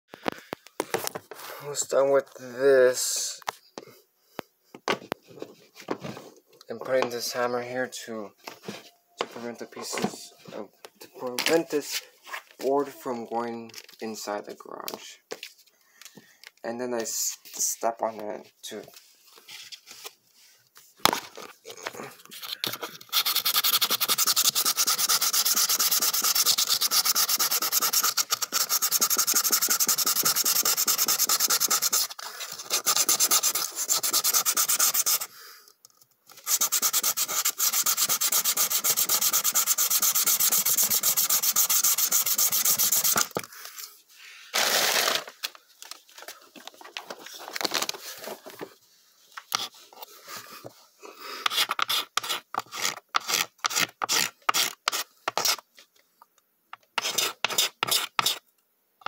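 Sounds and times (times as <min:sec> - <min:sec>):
hand sanding plywood: 0:23.1 - 0:35.3, 0:36.4 - 0:43.4.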